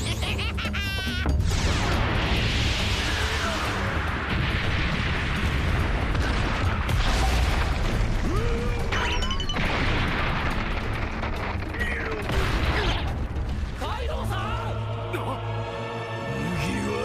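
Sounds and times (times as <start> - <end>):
booms and crashing impacts: 1.4 - 13.8.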